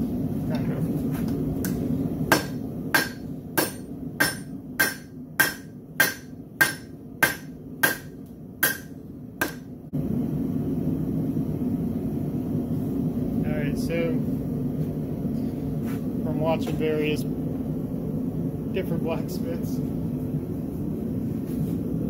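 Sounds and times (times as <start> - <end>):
hammer blows on anvil: 1.7 - 9.7.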